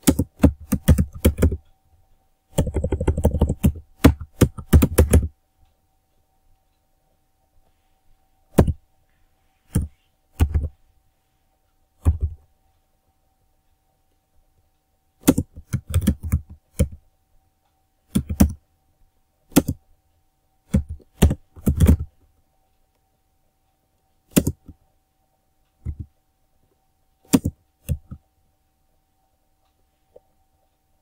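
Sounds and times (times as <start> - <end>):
computer keyboard typing: 0.0 - 1.7, 2.5 - 5.4, 8.5 - 8.9, 9.6 - 10.8, 12.0 - 12.5, 15.2 - 17.0, 18.1 - 18.6, 19.5 - 19.8, 20.6 - 22.2, 24.2 - 24.8, 25.8 - 26.1, 27.2 - 28.2.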